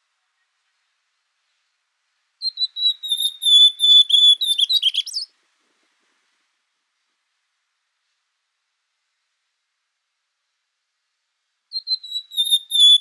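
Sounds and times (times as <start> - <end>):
bird singing whistled notes: 2.4 - 5.3, 11.7 - 13.0.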